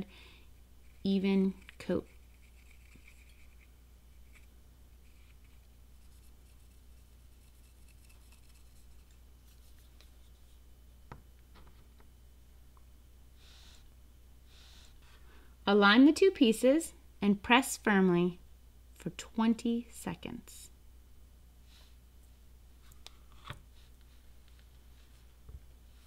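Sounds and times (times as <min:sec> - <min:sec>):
low steady hum: 0:00.0 - 0:26.0
faint plastic scratching on rubber: 0:00.8 - 0:10.6.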